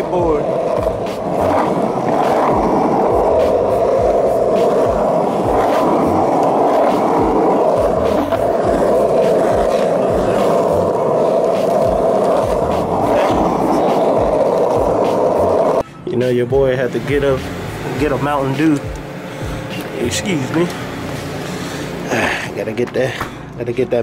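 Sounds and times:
skateboard wheels rolling on pavement: 0.0s - 15.8s.

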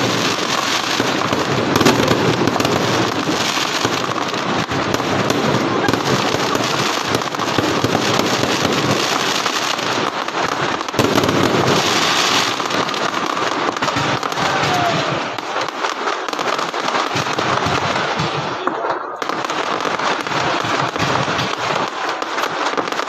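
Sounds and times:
fireworks crackling and popping: 0.0s - 23.0s.

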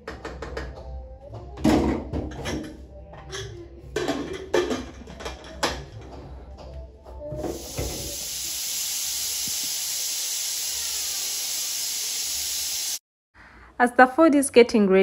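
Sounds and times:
steady hiss: 7.5s - 13.0s.

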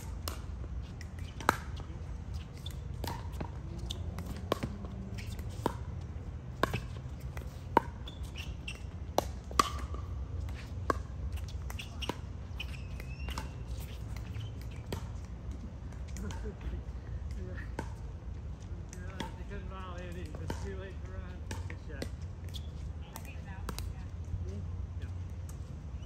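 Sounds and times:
short squeak: 8.0s - 8.9s.

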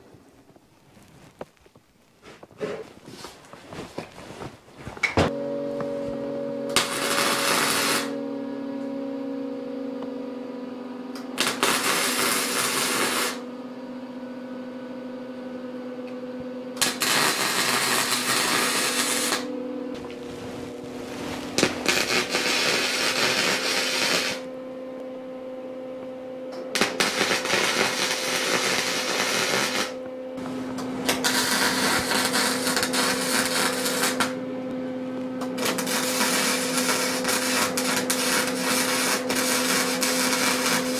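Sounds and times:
steady hum: 0.0s - 40.9s
welding arc crackling: 6.8s - 8.2s, 11.4s - 13.4s, 16.8s - 19.5s, 20.2s - 24.5s, 26.7s - 30.0s, 31.0s - 34.4s, 35.4s - 40.9s.

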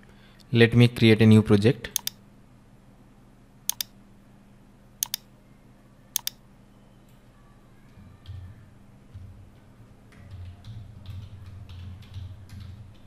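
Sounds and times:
computer mouse clicks: 2.0s - 2.2s, 3.7s - 3.9s, 5.0s - 5.3s, 6.2s - 6.4s.

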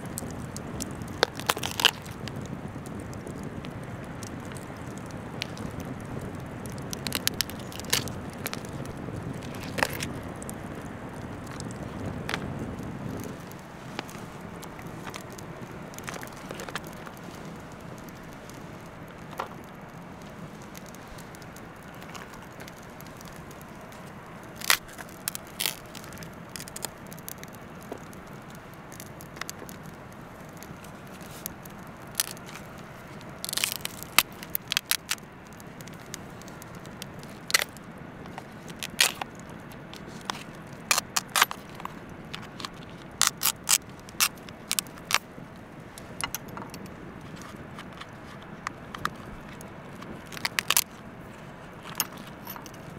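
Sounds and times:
crab shell cracking: 0.1s - 52.9s.

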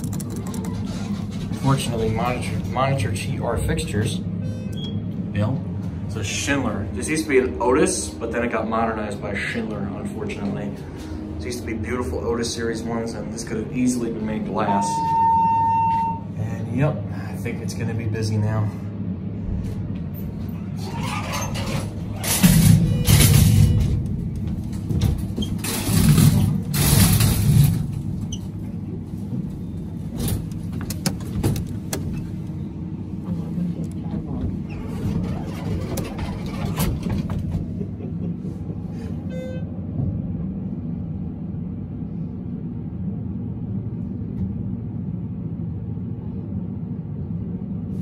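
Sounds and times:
noisy bursts and clatter: 0.0s - 4.0s, 20.7s - 32.6s, 33.8s - 38.9s
elevator hum: 0.0s - 48.0s
short beep tone: 14.7s - 16.3s, 39.3s - 39.7s.

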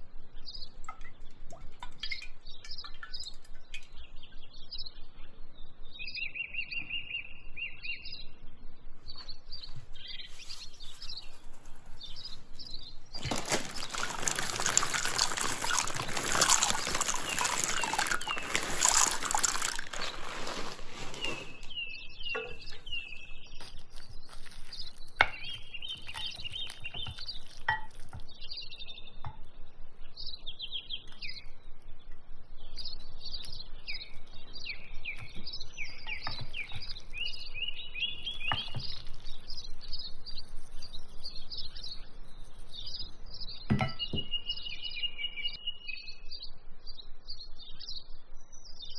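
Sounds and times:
birds chirping and singing: 2.0s - 48.9s
pasta splashing into boiling water: 13.2s - 21.7s.

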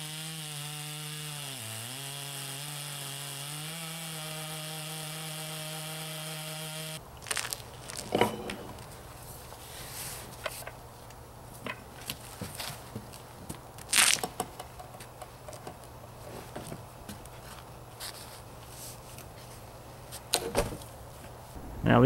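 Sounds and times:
chainsaw cutting log: 0.0s - 7.0s
wood knocks and scrapes: 8.0s - 9.0s.

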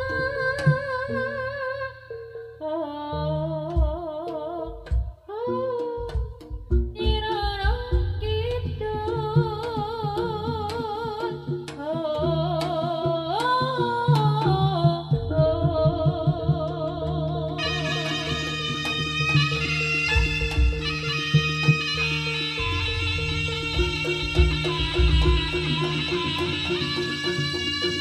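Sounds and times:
ornamented melody with vibrato: 0.0s - 28.0s
steady drum strokes: 17.6s - 28.0s.

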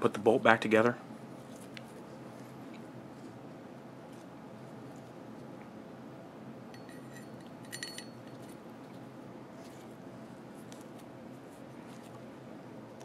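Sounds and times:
short ringing metal clink: 6.7s - 8.4s.

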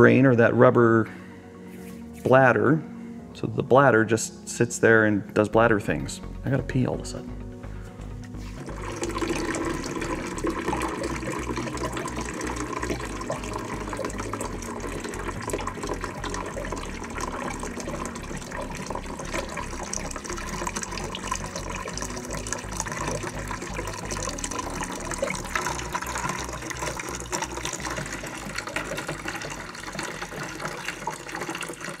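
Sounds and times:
water pouring into a bucket: 8.6s - 32.0s.

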